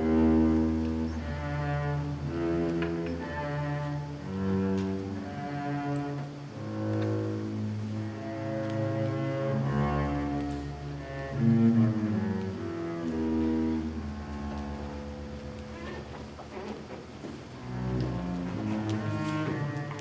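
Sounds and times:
double bass bowed notes: 0.0s - 20.0s.

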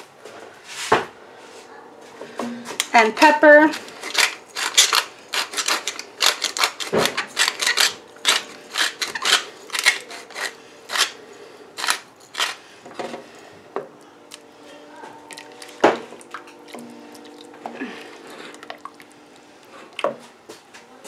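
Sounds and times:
pepper grinder grinding: 2.8s - 12.7s.

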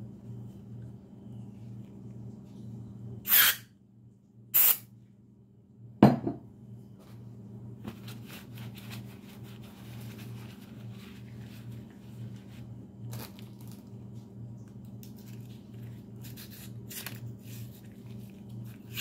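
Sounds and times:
aerosol spray blasts: 4.6s - 4.8s
cloth rubbing and crinkling: 7.8s - 14.3s.

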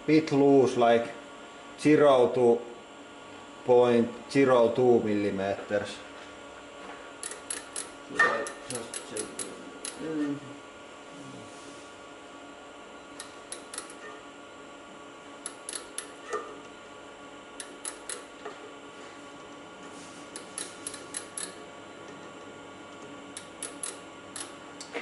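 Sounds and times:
steady hum: 0.0s - 25.0s
micrometer ratchet clicking: 7.2s - 10.0s, 13.2s - 14.0s, 15.4s - 16.2s, 17.6s - 18.3s, 20.3s - 21.6s, 23.3s - 24.6s.

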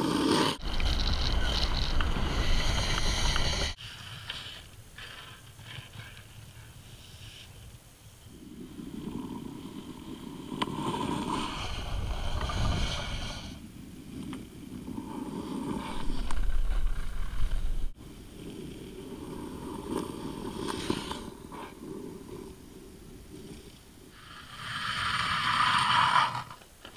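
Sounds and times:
ice skates scraping ice: 0.0s - 7.6s, 9.0s - 13.6s, 14.2s - 22.1s, 24.2s - 26.7s
wind buffeting microphone: 0.6s - 3.8s, 8.3s - 20.6s.

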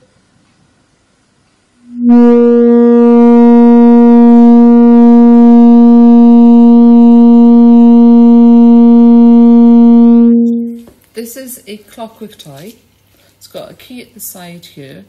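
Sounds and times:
singing tube low steady note: 1.8s - 10.8s.

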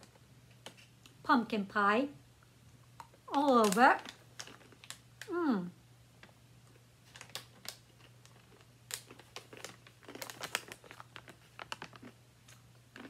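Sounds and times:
snack bag crinkling: 3.0s - 5.3s, 6.2s - 13.0s.

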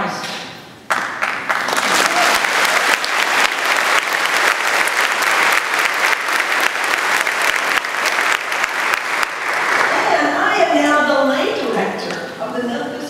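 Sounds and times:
audience applauding: 0.9s - 10.3s.

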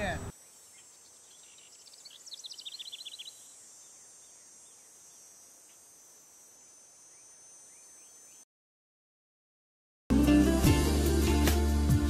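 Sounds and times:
bird trilling: 0.2s - 4.8s
insect drone: 0.3s - 8.5s.

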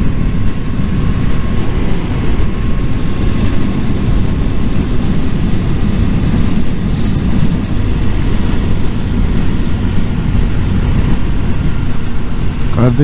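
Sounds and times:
motorcycle engine running: 0.0s - 13.0s
wind rushing over microphone: 0.0s - 13.0s.

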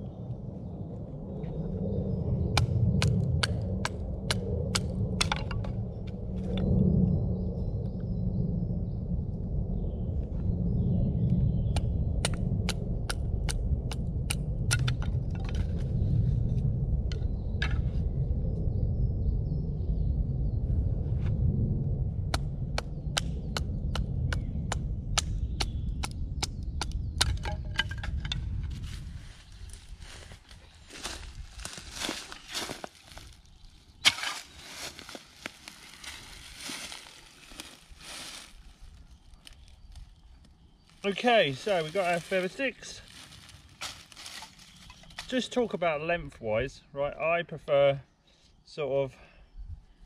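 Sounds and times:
low steady rumble: 0.0s - 42.3s
wooden sticks clattering on ground: 5.2s - 5.8s, 14.7s - 15.8s, 27.2s - 29.0s, 30.0s - 33.4s, 34.0s - 38.6s, 41.0s - 45.5s
rustling of dry leaves: 28.4s - 45.7s.

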